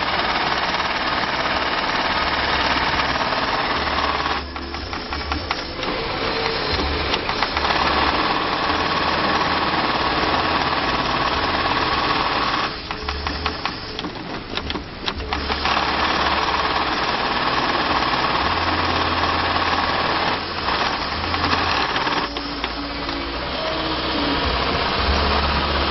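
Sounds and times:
industrial sewing machine running: 0.0 - 25.9
clicks: 4.3 - 8.0, 21.3 - 23.5.

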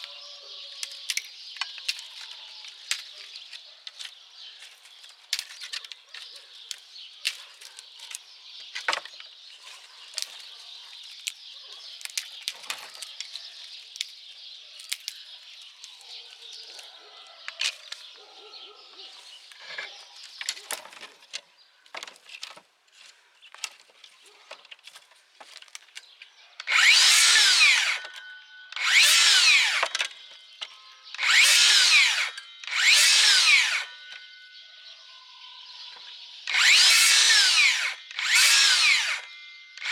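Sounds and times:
dry branches rustling and clicking: 0.0 - 18.3, 19.2 - 34.4, 36.5 - 39.9
circular saw cutting branches: 26.6 - 30.3, 31.1 - 34.3, 36.4 - 39.9.

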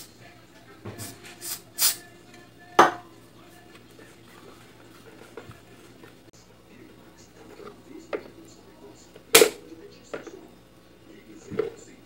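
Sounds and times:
aerosol spray can hissing: 1.0 - 2.0.

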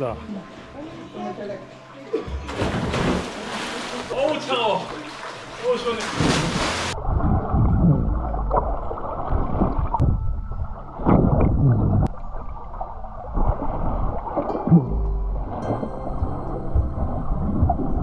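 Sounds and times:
splash into water: 2.5 - 7.5
underwater sloshing and bubbling: 3.4 - 18.0.

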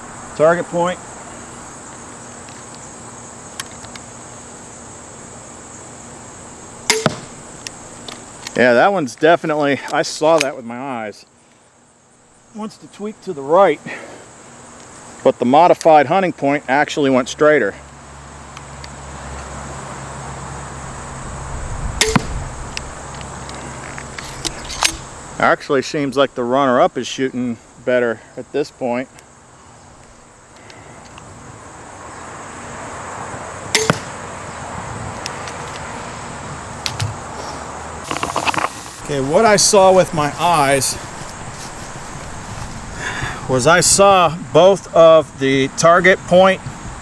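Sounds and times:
insects chirring: 0.0 - 47.0
bolt striking target: 6.9 - 7.4, 22.0 - 22.5, 33.7 - 34.2
crossbow string snap: 6.9 - 7.8, 22.0 - 22.9, 33.7 - 34.2.

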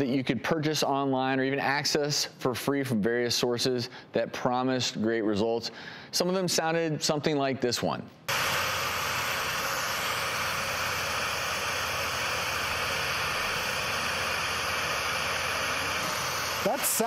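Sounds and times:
steady rushing hiss: 8.3 - 17.0.

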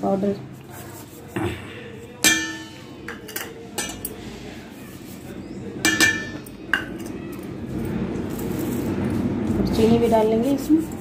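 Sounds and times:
ceramic bowl clinking on steel bowl: 2.2 - 4.2, 5.8 - 7.1.

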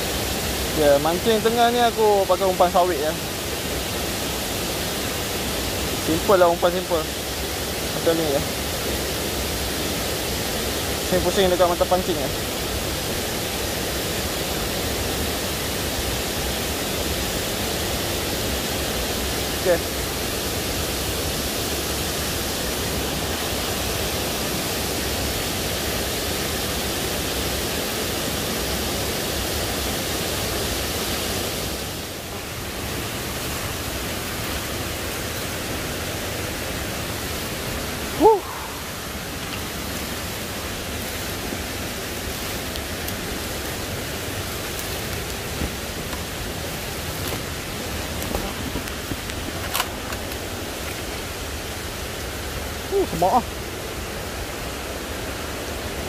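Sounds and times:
waterfall rushing: 0.0 - 56.0
short pitched call: 38.2 - 38.9.

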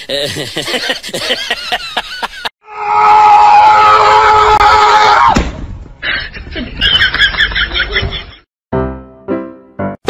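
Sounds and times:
siren-like wail: 2.6 - 5.4.

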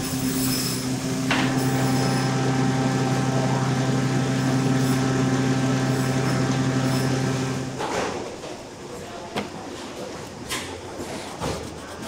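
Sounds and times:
machinery hum: 0.0 - 8.5.

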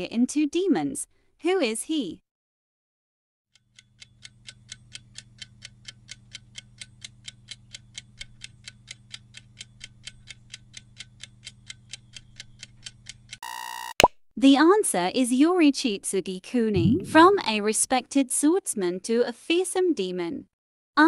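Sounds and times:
low steady hum: 16.8 - 17.4.

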